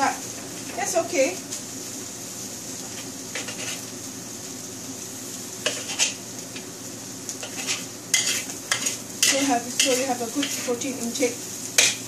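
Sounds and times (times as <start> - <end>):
food sizzling in a wok: 0.0 - 12.0
spatula scraping a wok: 2.8 - 3.9, 5.6 - 6.2, 7.4 - 12.0.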